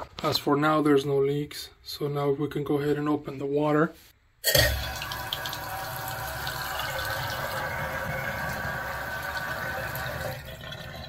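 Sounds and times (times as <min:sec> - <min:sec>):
faucet water pouring into sink: 0:04.6 - 0:11.0.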